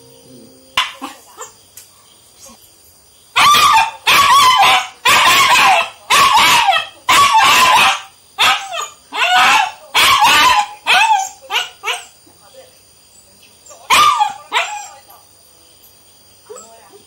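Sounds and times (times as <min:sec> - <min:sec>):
puppy barking high-pitched: 0:00.8 - 0:01.5, 0:03.4 - 0:12.1, 0:13.9 - 0:15.0.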